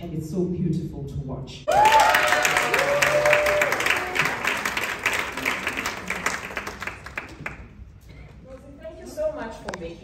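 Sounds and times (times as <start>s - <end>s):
audience applauding: 1.7s - 7.7s.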